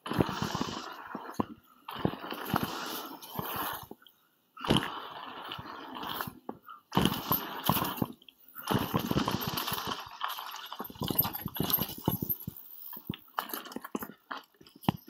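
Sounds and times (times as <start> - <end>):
bike tyres on loose dirt: 0.0 - 4.0, 7.0 - 12.5
bike knocking and rattling: 8.8 - 15.0.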